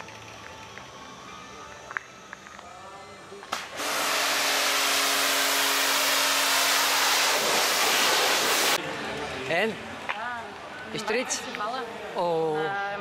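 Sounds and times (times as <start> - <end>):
pressure washer spraying hiss: 3.5 - 8.8.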